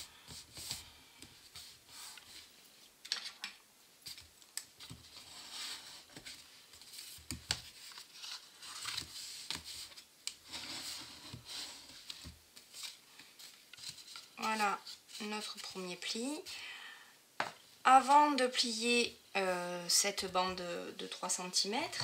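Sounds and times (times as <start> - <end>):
cardstock being folded: 4.2 - 15.7
paper sliding over mat: 7.9 - 14.2.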